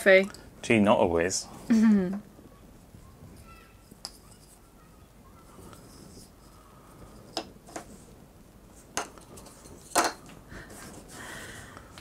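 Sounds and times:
faint rustle: 2.4s - 11.4s.

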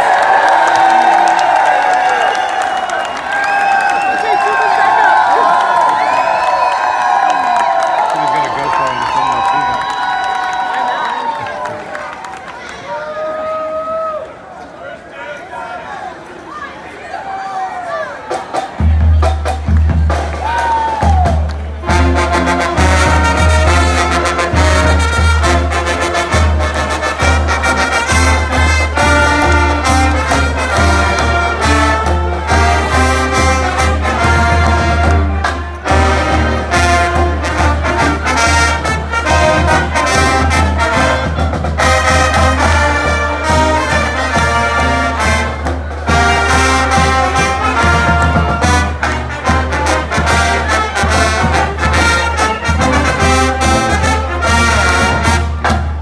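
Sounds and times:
brass band playing: 18.3s - 56.0s.

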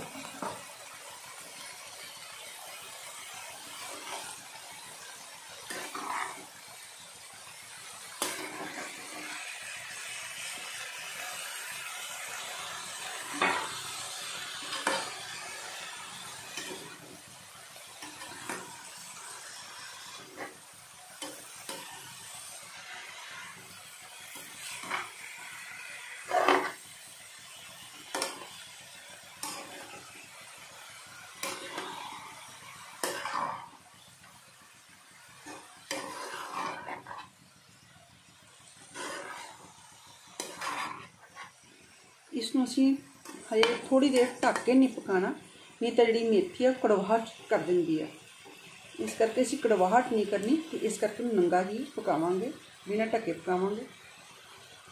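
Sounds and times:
food sizzling in pan: 0.0s - 54.9s
metal spatula scraping pan: 3.7s - 4.4s, 5.6s - 6.6s, 8.2s - 9.5s, 12.9s - 17.1s, 18.0s - 20.6s, 21.2s - 23.7s, 24.3s - 26.8s, 28.1s - 28.6s, 29.4s - 30.2s, 30.9s - 33.8s, 35.4s - 37.4s, 38.8s - 39.8s, 40.4s - 41.6s, 42.6s - 45.0s.

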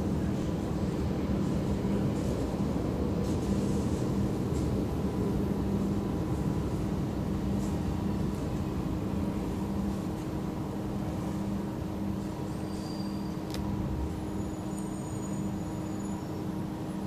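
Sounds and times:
metro train rumbling in tunnel: 0.0s - 17.0s
faint high squeals: 12.2s - 16.6s.

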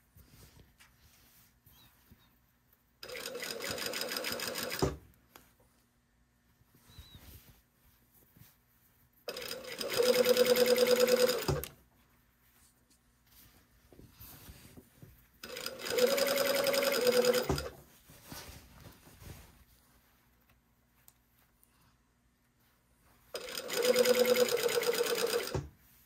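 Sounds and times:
sewing machine stitching: 3.0s - 5.0s, 9.3s - 11.7s, 15.4s - 17.8s, 23.4s - 25.7s
sewing machine stopping knock: 9.3s - 11.7s, 15.4s - 17.7s, 23.4s - 25.7s
fabric rustling: 11.3s - 21.6s.

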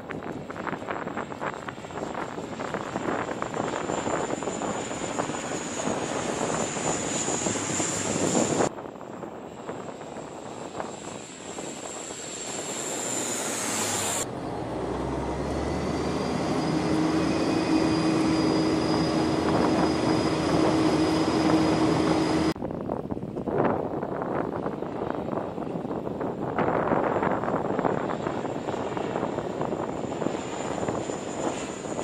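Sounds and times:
turboprop aircraft flying overhead: 0.0s - 32.0s
high whine sliding down in pitch: 12.4s - 22.6s.

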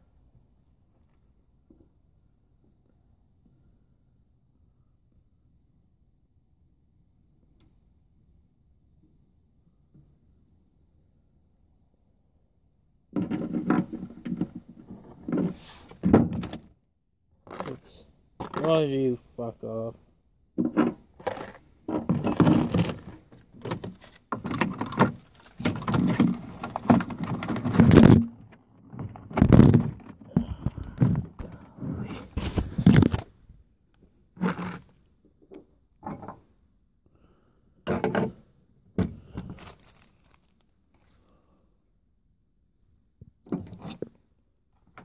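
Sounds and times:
hard objects knocking and scraping: 20.6s - 33.3s.

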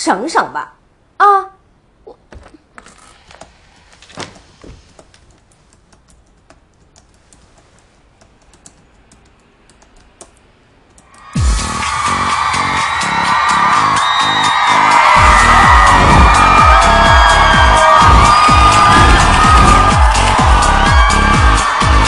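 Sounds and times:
music: 11.2s - 22.0s
deep thump: 15.2s - 20.6s.

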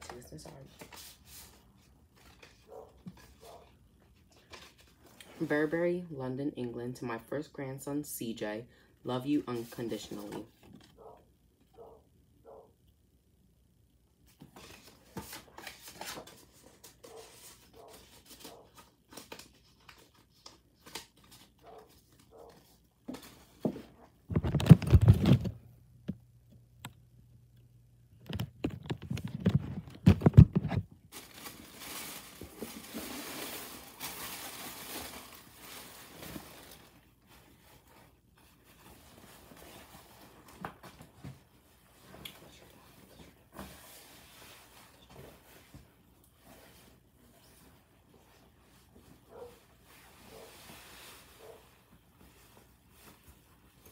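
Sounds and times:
tissue paper rustling: 29.0s - 40.5s, 41.6s - 53.9s.

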